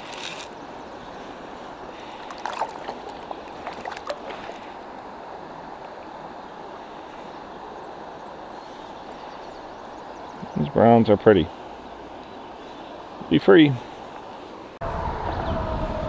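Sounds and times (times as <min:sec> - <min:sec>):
shallow river water rushing: 0:00.0 - 0:14.8.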